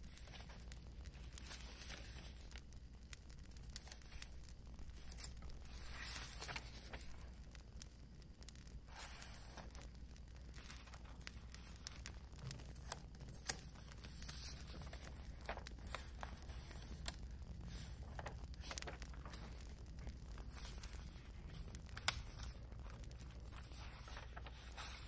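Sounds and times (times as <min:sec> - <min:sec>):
packaging crinkles: 0:00.0 - 0:25.0
paper rustling and tearing: 0:05.0 - 0:07.1, 0:20.3 - 0:25.0.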